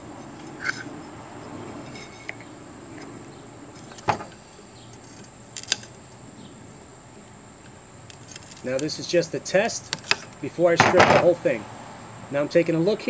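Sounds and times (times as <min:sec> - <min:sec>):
sharp metal knocks: 0:10.8 - 0:11.3.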